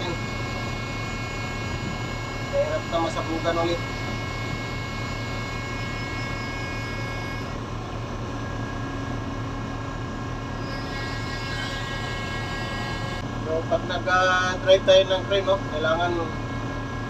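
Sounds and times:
higher steady tone: 0.0s - 7.6s
crane engine drone: 0.0s - 17.0s.

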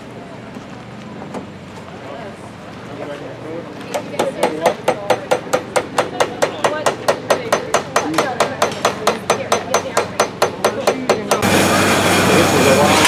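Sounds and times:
hammer striking iron on anvil: 4.2s - 11.5s.

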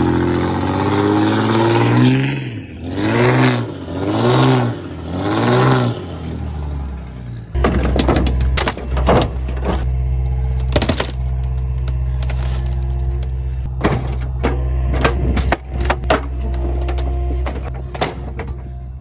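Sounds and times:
excavator diesel engine running: 0.0s - 19.0s
wooden boards cracking and clattering: 7.6s - 9.8s, 10.6s - 18.7s.

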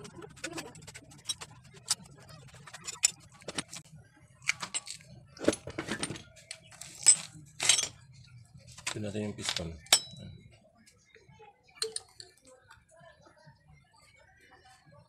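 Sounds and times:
metal parts clinking on crankcase: 0.4s - 3.8s, 4.5s - 8.0s, 8.8s - 10.2s.

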